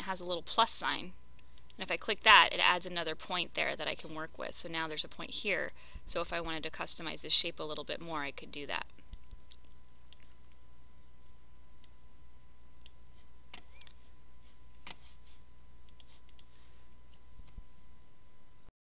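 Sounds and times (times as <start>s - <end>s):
low electrical hum: 0.0s - 18.7s
computer mouse clicks: 8.9s - 10.6s, 15.8s - 16.5s.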